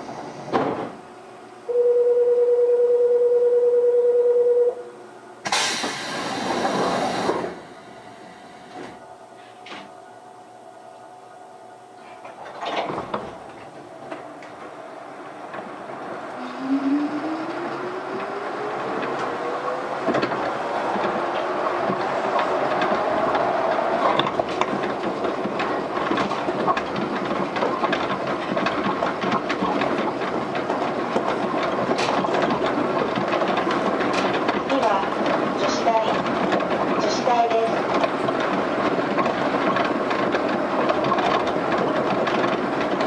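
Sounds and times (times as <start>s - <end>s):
train thump: 0.4s - 1.0s, 5.4s - 7.8s, 12.2s - 14.8s, 16.6s - 43.0s
clicks and knocks from guideway: 12.0s - 14.7s, 20.0s - 43.0s
train drive whine rising in pitch: 13.4s - 26.1s.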